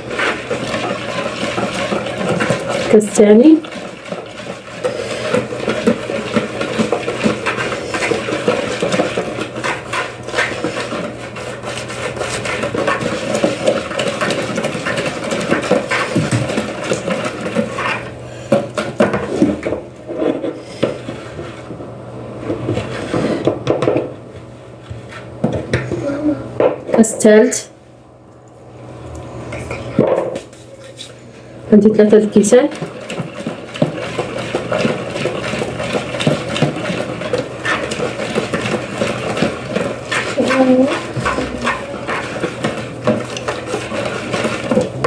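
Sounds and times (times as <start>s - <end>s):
whisk scraping and clicking bowl: 0.0s - 21.6s, 32.0s - 45.0s.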